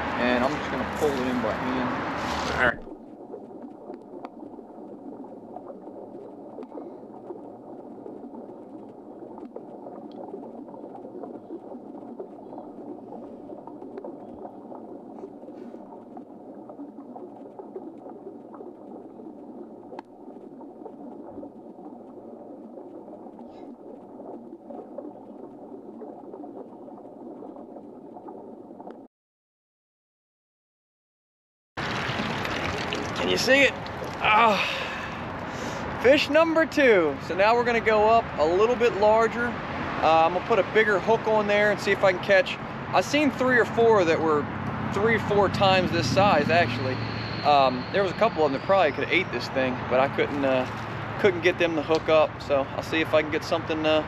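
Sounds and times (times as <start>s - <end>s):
muffled rushing water: 0.0s - 29.1s, 31.8s - 54.0s
faint clicks: 2.8s - 29.1s, 51.8s - 52.1s.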